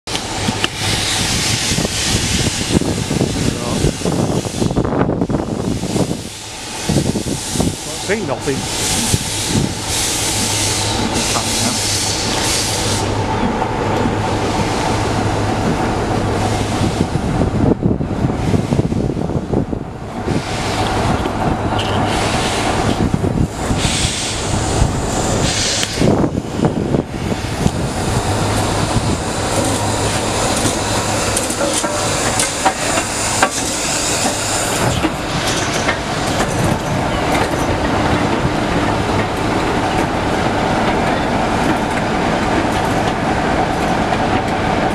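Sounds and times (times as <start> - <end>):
steam locomotive hissing: 0.1 - 17.6, 20.2 - 44.9
locomotive rumble: 0.1 - 44.9
wheels clattering on rail joints: 7.8 - 17.0, 20.2 - 24.0, 27.6 - 44.9.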